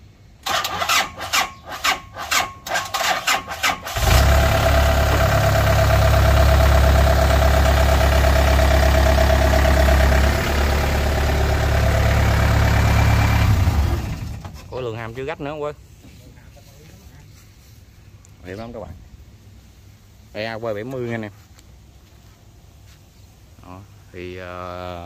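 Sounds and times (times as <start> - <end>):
starter cranking diesel engine: 0.4 - 14.6
diesel engine idling: 4.0 - 14.7.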